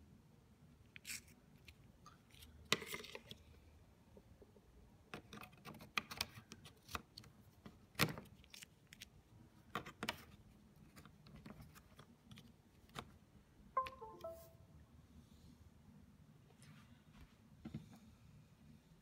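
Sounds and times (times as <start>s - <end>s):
brief pitched tone: 13.8s - 14.6s.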